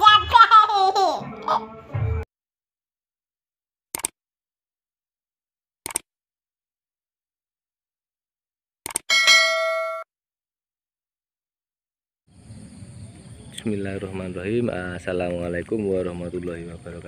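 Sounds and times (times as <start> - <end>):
bright bell ding: 9.1 - 10.1.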